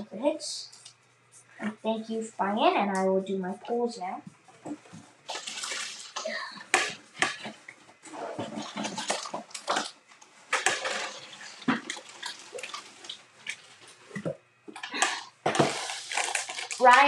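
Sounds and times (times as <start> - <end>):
rustling of objects being moved: 4.4 - 17.0.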